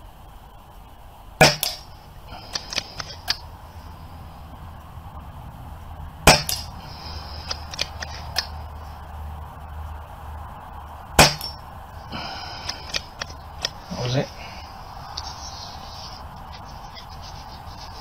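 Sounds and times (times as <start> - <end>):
air rifle shots: 1.4 - 3.4, 6.2 - 8.6, 11.1 - 13.8.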